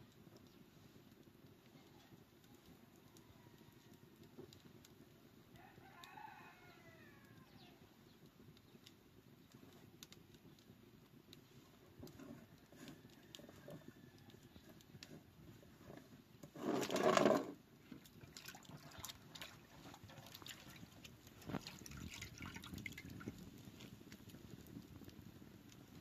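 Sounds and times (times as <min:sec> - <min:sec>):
faint rooster crowing: 0:01.7 - 0:04.3, 0:05.5 - 0:08.0, 0:12.1 - 0:15.2.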